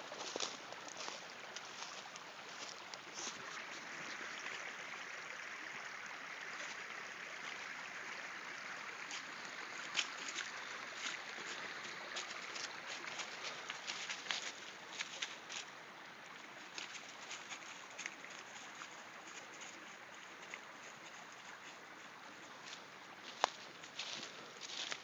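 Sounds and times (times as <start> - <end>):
dry leaves rustling: 0.0 - 3.6, 9.1 - 15.8, 16.6 - 21.8, 22.5 - 25.0
stream rushing: 0.0 - 25.0.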